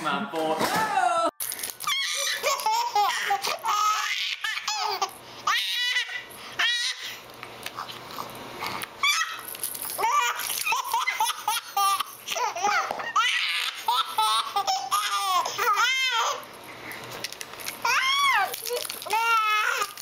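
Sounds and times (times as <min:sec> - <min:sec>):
babies laughing: 0:01.9 - 0:07.2, 0:09.0 - 0:16.5, 0:17.9 - 0:20.0.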